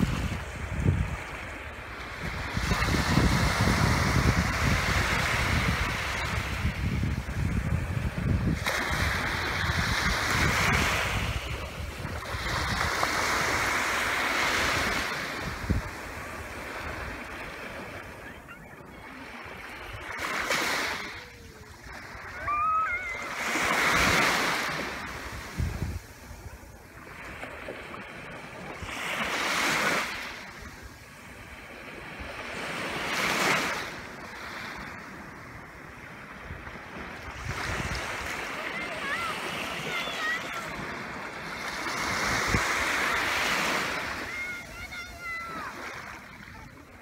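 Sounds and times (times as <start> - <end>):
waves washing onto sandy beach: 0.0 - 47.0.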